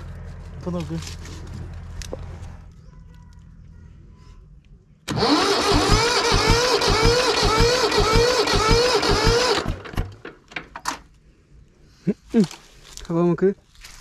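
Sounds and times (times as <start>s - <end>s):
diesel engine cranking with starter: 5.0s - 11.0s.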